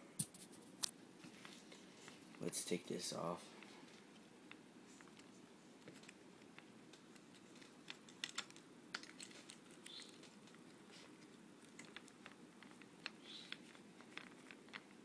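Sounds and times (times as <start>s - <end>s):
cable clicks and rustling: 3.4s - 15.0s.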